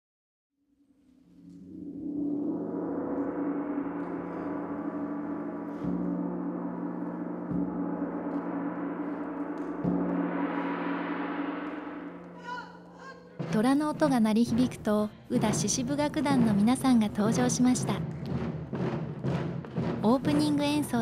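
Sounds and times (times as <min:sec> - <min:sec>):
gong ringing: 0:01.6 - 0:14.6.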